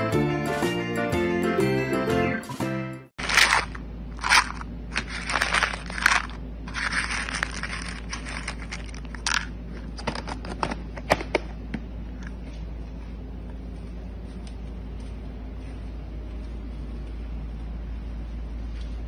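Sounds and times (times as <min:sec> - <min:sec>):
dry kibble rattling in plastic bin: 0:03.2 - 0:09.5
kibble pieces clicking on plastic cup: 0:03.2 - 0:09.5.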